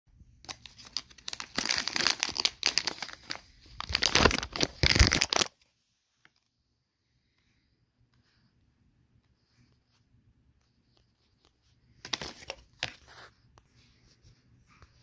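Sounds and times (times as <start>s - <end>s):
foil snack pouch crinkling: 0.5s - 5.6s.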